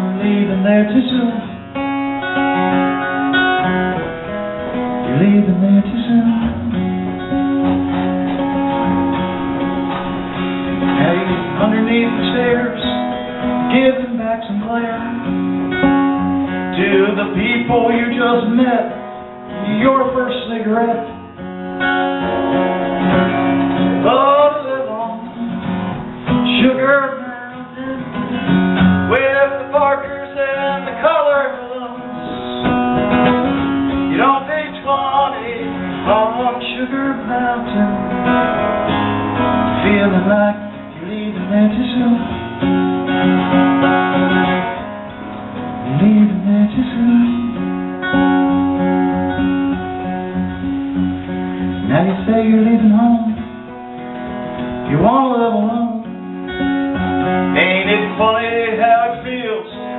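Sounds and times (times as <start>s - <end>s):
man singing: 0.0s - 3.1s, 4.7s - 7.6s, 10.8s - 21.2s, 23.8s - 33.1s, 33.9s - 38.8s, 39.5s - 42.7s, 45.8s - 48.2s, 51.8s - 53.7s, 54.8s - 56.4s, 57.3s - 59.9s
acoustic guitar strummed and picked: 0.0s - 59.9s.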